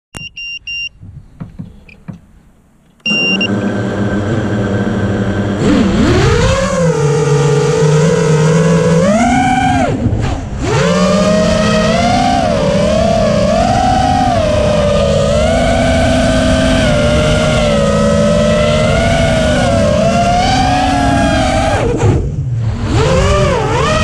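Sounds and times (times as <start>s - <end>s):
short electronic beeps: 0.2s - 1.0s, 3.0s - 3.5s
drone motors whining: 3.0s - 24.0s.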